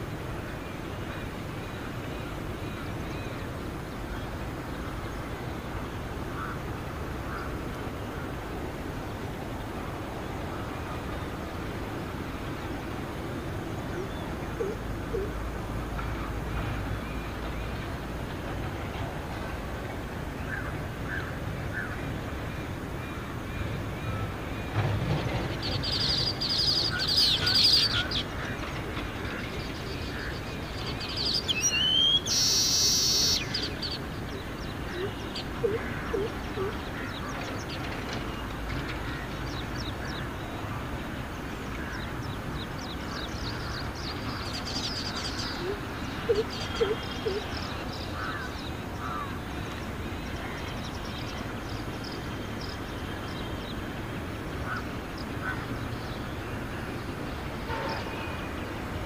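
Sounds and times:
background hiss: 0.0s - 59.0s
bird chattering: 45.4s - 47.5s.

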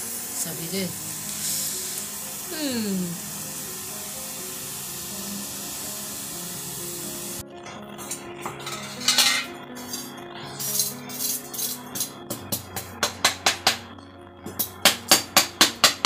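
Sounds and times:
steady hiss: 0.0s - 7.4s
faint music: 0.0s - 16.0s.

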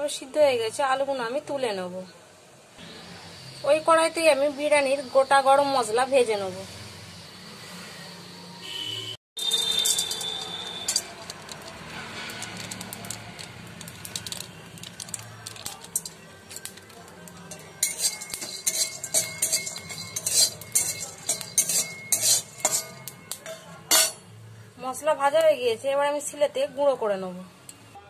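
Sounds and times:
metal spatula scraping pan: 9.4s - 13.5s, 14.1s - 24.3s.

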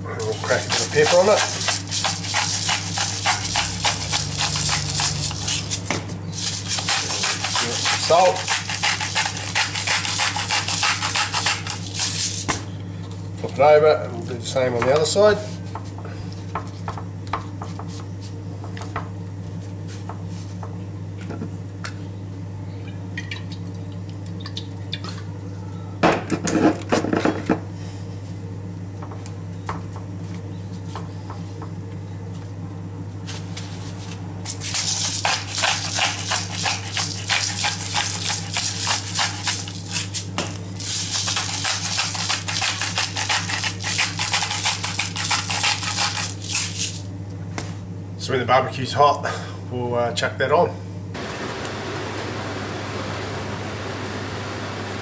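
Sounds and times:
grinder grinding: 0.2s - 12.2s.

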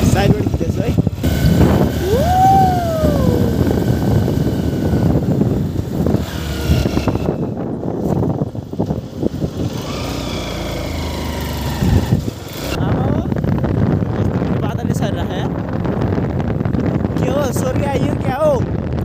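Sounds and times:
motorcycle engine running: 0.0s - 17.4s
road and wind noise: 0.0s - 19.0s
rising and falling tone: 1.3s - 4.2s, 8.9s - 12.8s.

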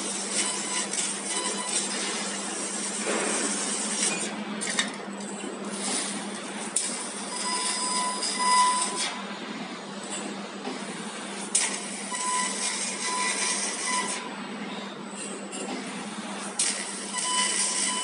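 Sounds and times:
laser cutting machine hiss: 0.0s - 4.3s, 11.0s - 14.3s, 16.4s - 18.0s.

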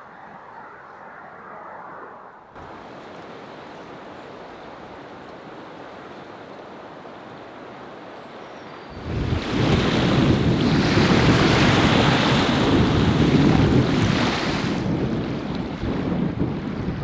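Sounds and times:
faint outdoor hiss: 2.6s - 9.0s
wind buffeting microphone: 8.7s - 17.0s.

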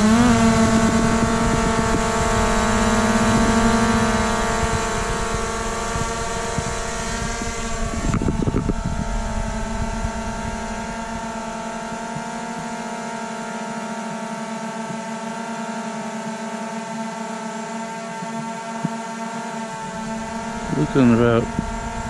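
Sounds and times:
drone propellers humming: 0.0s - 14.6s, 17.9s - 22.0s
low rumble: 6.8s - 12.0s, 19.9s - 22.0s.

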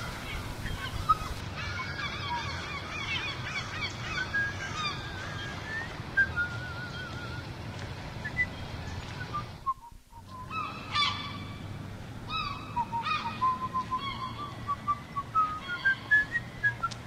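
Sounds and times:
gulls calling: 0.0s - 17.0s
person whistling a tune: 14.7s - 17.0s.

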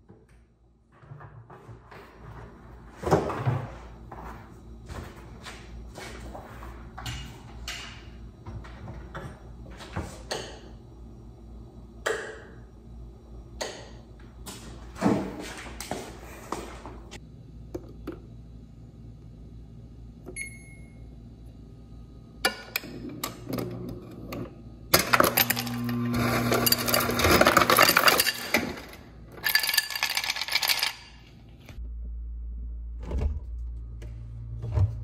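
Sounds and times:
hard objects clinking and rattling: 26.5s - 31.2s.

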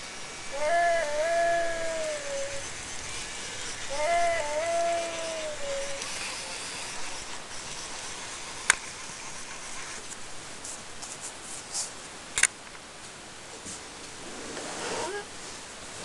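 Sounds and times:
robot dinosaur animal-like call: 0.5s - 6.6s.

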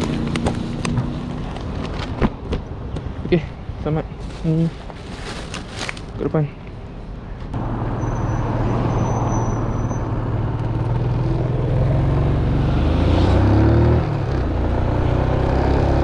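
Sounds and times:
road noise: 0.0s - 16.0s
motorcycle engine accelerating: 10.1s - 16.0s.

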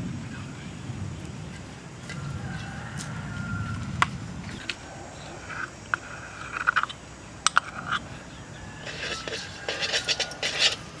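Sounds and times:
cooking fire rumble: 0.0s - 11.0s
metal spoon scraping ceramic cup: 8.8s - 11.0s.

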